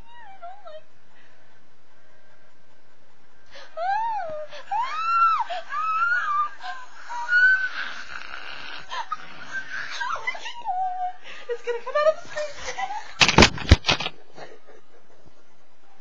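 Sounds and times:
high-pitched wailing cries: 3.8s - 11.2s.

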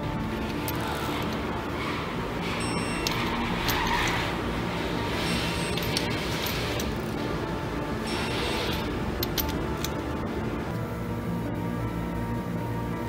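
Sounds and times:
background music sustained tones: 0.0s - 13.0s.

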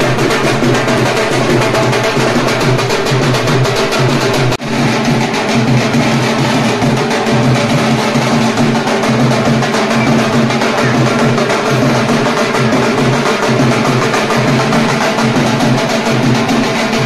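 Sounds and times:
drums in a fast rhythm: 0.0s - 17.0s.

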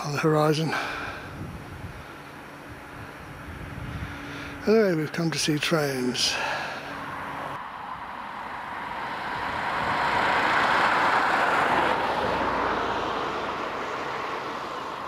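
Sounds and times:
vehicle passing on wet road: 7.0s - 15.0s.

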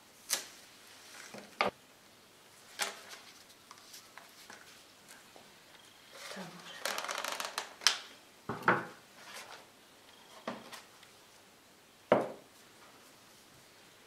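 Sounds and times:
rustling: 0.1s - 1.8s, 2.5s - 8.2s, 9.1s - 11.5s
plate and jar knocking on board: 12.1s - 12.4s.

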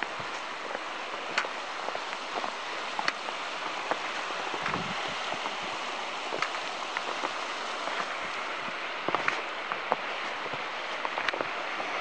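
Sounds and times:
river water rushing past rocks: 0.0s - 12.0s
light ticks: 1.3s - 2.3s.

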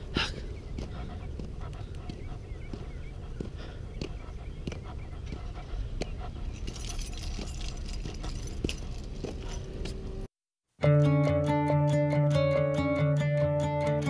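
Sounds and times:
low background rumble: 0.0s - 10.3s
keys jangling: 6.4s - 10.0s.

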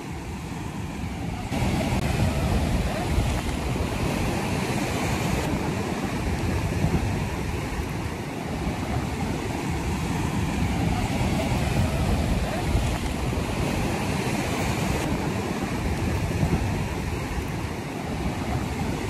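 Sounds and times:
sea surf breaking: 0.0s - 19.0s
wind on microphone: 0.0s - 19.0s.

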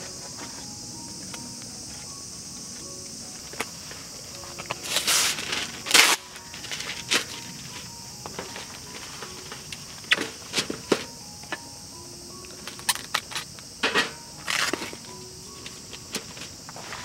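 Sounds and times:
insects droning: 0.0s - 17.0s
trays set down on metal table: 13.8s - 14.9s.

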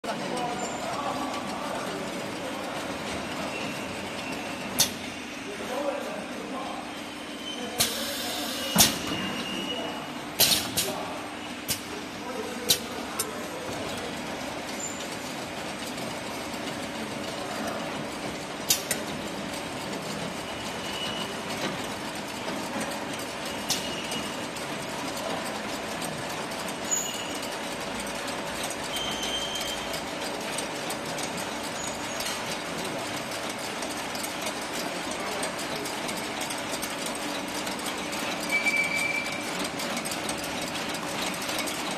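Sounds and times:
conveyor hum and rattle: 0.0s - 41.9s
high squeaks: 38.5s - 39.4s.

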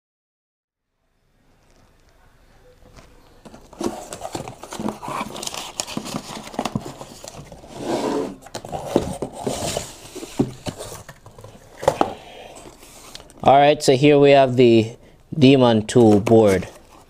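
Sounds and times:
packing paper rustling: 2.9s - 7.8s, 8.4s - 13.4s
boxes knocking: 8.3s - 12.2s.

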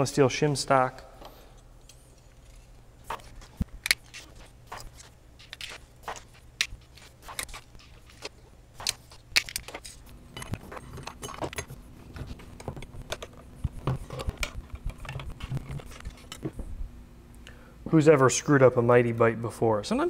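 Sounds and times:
metal parts clinking: 5.4s - 11.8s.

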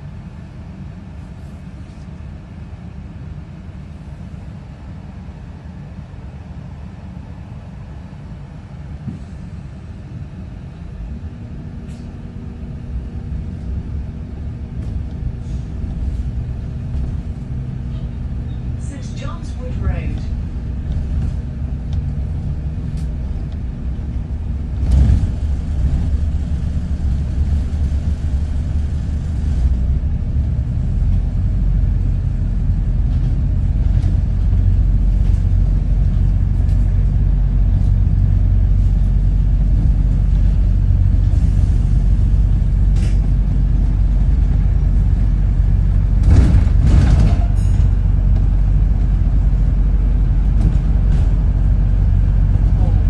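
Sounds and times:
bus engine rumbling: 0.0s - 53.0s
knocks and rattles: 46.2s - 48.5s.

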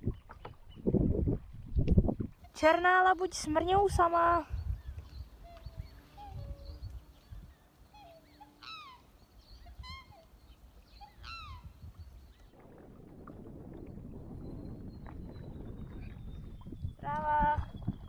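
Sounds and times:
swans calling: 5.1s - 12.4s.

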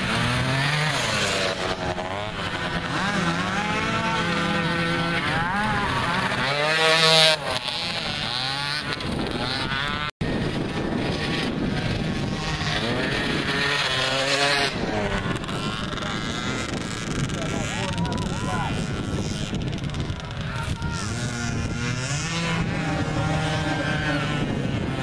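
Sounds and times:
quad engines revving: 0.0s - 25.0s.

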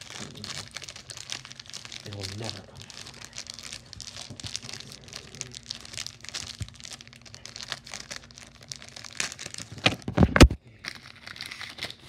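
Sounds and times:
crinkling and rustling: 0.0s - 12.0s
faint low hum: 0.0s - 12.0s.

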